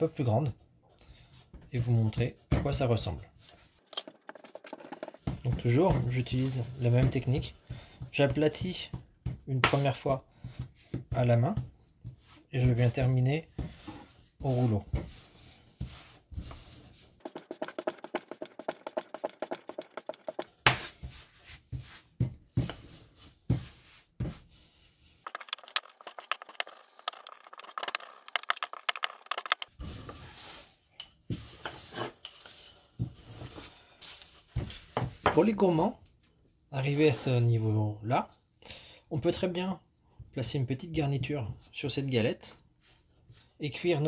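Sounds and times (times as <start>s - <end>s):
rolling pin rattling and scraping: 3.8s - 6.4s, 17.2s - 20.6s, 25.2s - 30.2s.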